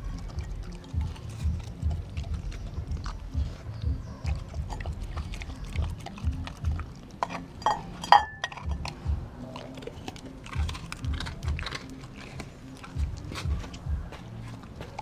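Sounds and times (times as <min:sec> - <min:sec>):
dog chewing and smacking: 0:00.0 - 0:15.0
teeth clinking on glass bowl: 0:04.1 - 0:09.0.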